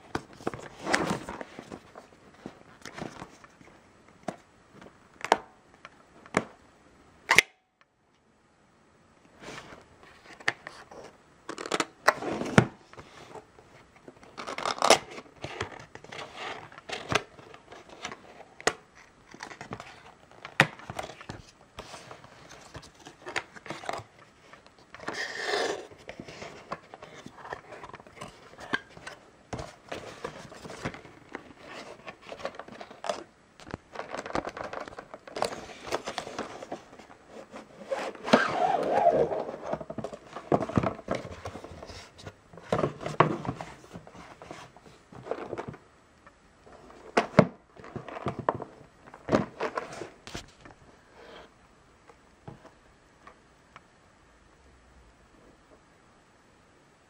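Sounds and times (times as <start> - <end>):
cardboard packaging rustling: 0.0 - 3.8, 9.4 - 45.9
case sliding out of box: 0.4 - 1.8, 12.1 - 13.4, 34.1 - 42.0.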